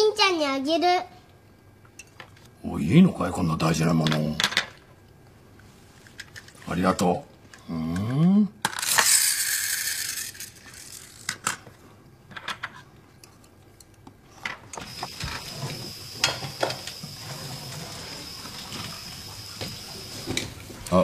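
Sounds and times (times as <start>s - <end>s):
faint high whine: 14.7s - 21.0s.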